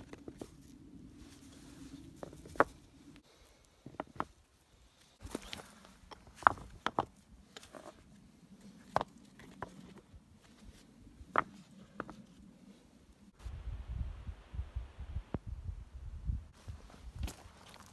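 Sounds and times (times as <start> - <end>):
rocks clacking together: 2.2 - 2.9, 5.2 - 8.0.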